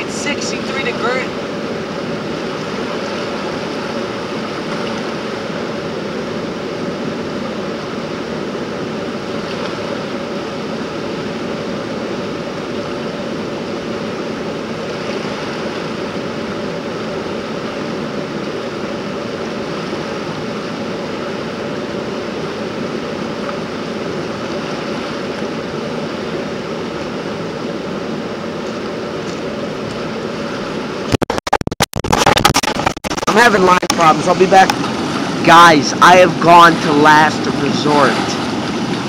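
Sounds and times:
river rushing over rocks: 0:32.1 - 0:39.0.

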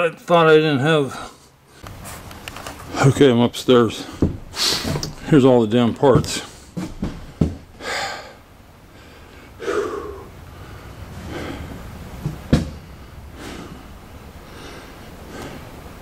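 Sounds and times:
man breathing hard: 0:06.5 - 0:12.0, 0:12.8 - 0:15.8.

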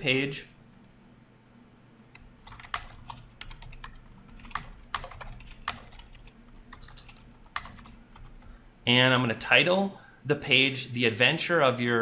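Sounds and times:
keyboard typing: 0:02.1 - 0:08.5.

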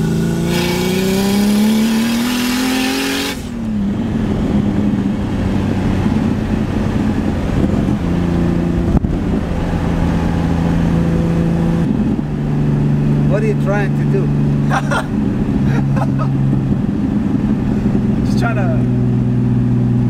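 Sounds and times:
car engine accelerating hard: 0:00.0 - 0:20.0.

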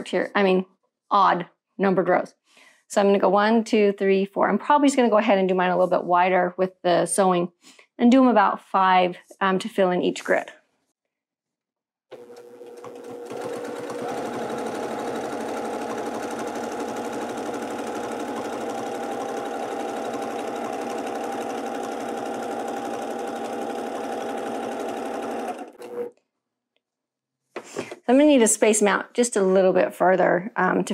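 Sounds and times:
sewing machine stitching: 0:12.1 - 0:26.1.

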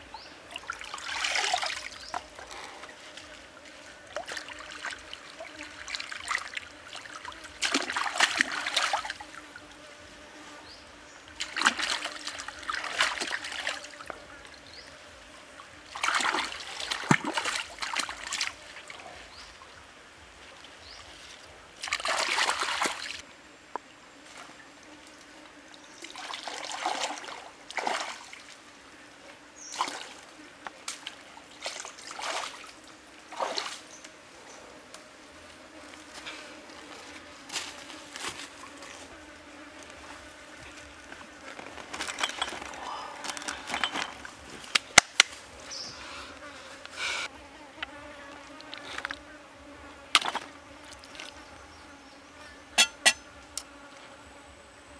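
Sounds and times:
shallow stream trickling: 0:00.0 - 0:46.0, 0:47.8 - 0:53.9
water splashing as greens are rinsed: 0:00.6 - 0:01.9, 0:04.2 - 0:09.2, 0:11.4 - 0:13.9, 0:15.9 - 0:18.5.

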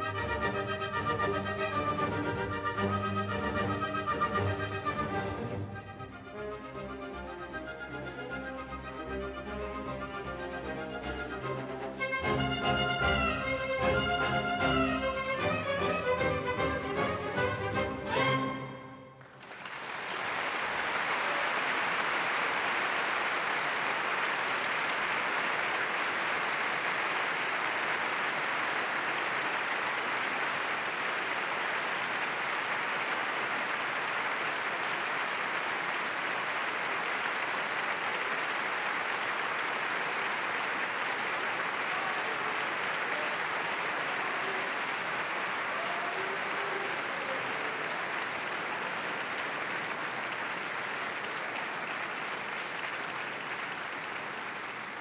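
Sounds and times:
audience applauding: 0:00.0 - 0:55.0.

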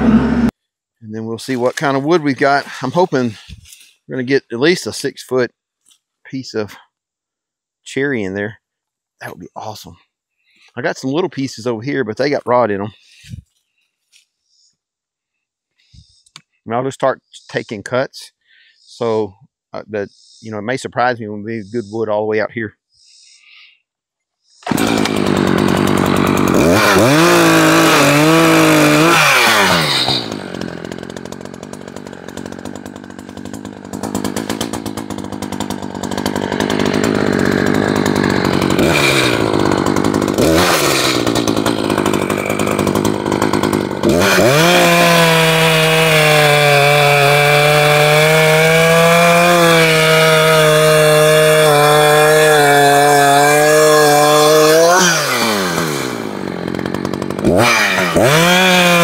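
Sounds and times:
chainsaw cutting log: 0:00.0 - 0:00.5, 0:01.5 - 0:03.9, 0:24.6 - 0:59.0.

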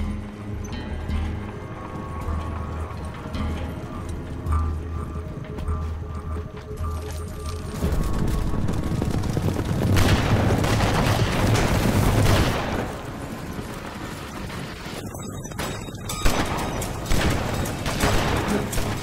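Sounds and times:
horses galloping: 0:00.9 - 0:19.0
gunshots: 0:09.8 - 0:13.5, 0:15.5 - 0:19.0.

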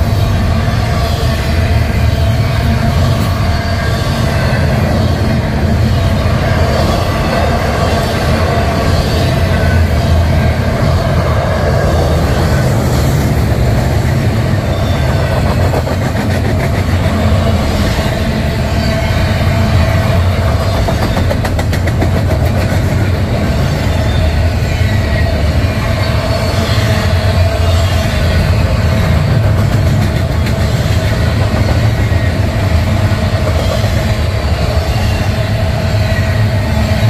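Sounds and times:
train wheels rumbling on rail: 0:00.0 - 0:37.0
train wheel clicks: 0:20.1 - 0:23.2, 0:29.0 - 0:34.8.

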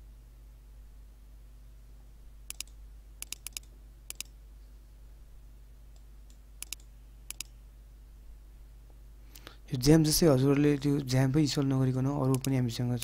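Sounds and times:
faint low hum: 0:00.0 - 0:13.0
computer mouse button clicking: 0:02.5 - 0:04.3, 0:06.6 - 0:07.6, 0:12.3 - 0:12.6.

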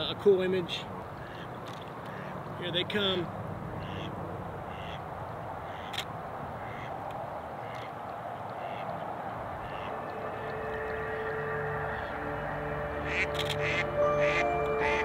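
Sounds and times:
ducks quacking: 0:01.2 - 0:02.4, 0:03.8 - 0:06.0, 0:06.6 - 0:07.0, 0:08.6 - 0:15.0
steady rushing background: 0:09.0 - 0:15.0.

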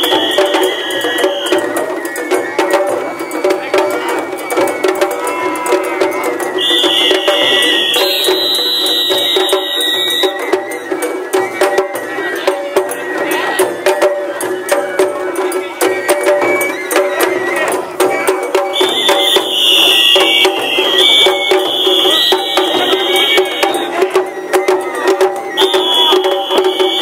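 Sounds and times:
shrill piping tone: 0:00.0 - 0:02.2, 0:06.5 - 0:10.8, 0:18.7 - 0:24.8, 0:25.4 - 0:27.0
crowd voices: 0:00.0 - 0:27.0
taiko drums beating rapidly: 0:00.0 - 0:27.0.

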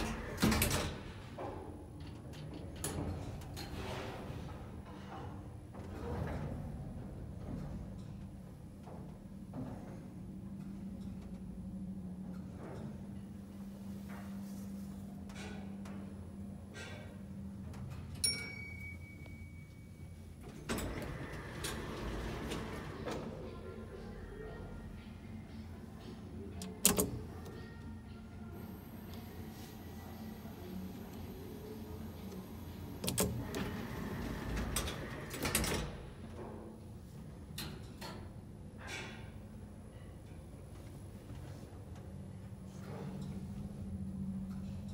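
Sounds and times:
high ding: 0:18.2 - 0:19.9
sliding doors opening: 0:20.4 - 0:23.5, 0:30.2 - 0:36.4.

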